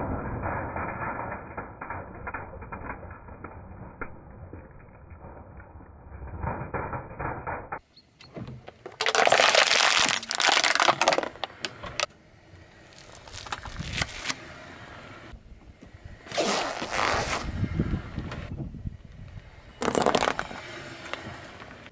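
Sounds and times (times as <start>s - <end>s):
tyre crushing small objects: 8.7s - 12.1s, 12.9s - 14.4s, 19.8s - 20.6s.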